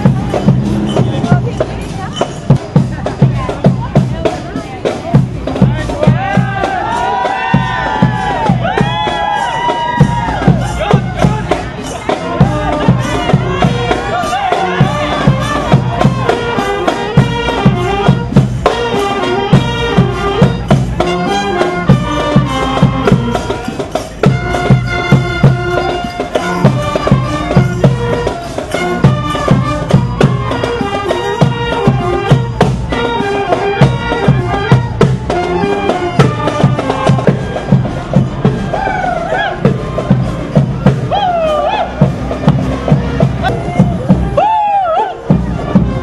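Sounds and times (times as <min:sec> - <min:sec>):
marching band wind instruments: 0:00.0 - 0:46.0
steady drum beat: 0:00.0 - 0:46.0.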